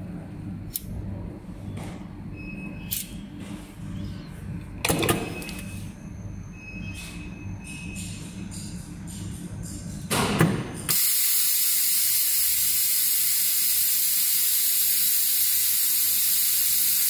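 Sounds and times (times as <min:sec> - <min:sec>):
machine humming: 0:10.8 - 0:17.0.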